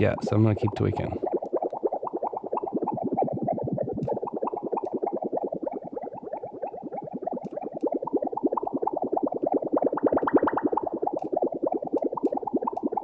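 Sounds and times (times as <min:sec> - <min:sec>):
synthesized watery bubbling: 0:00.0 - 0:13.0.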